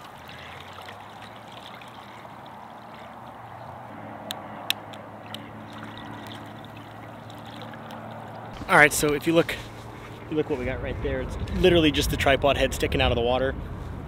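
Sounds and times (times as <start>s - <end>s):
river water trickling and lapping: 0.0s - 10.7s.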